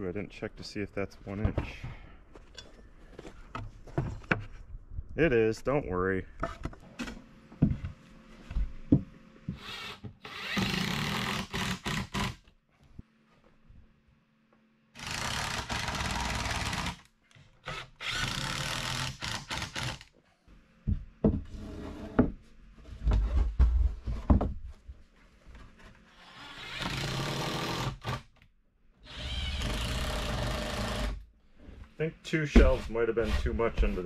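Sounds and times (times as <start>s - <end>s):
cordless drill driving screws: 9.6s - 12.4s, 15.0s - 20.1s, 29.0s - 31.2s.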